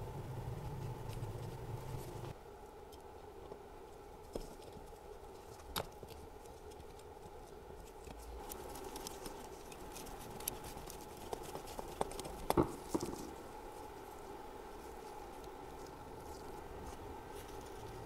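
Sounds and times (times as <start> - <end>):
faint steady hum: 0.0 - 18.0.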